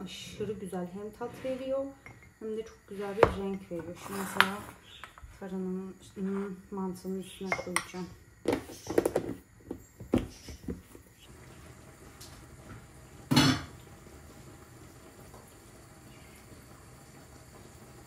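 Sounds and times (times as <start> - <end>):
pot and lid clattering: 13.3 - 13.8.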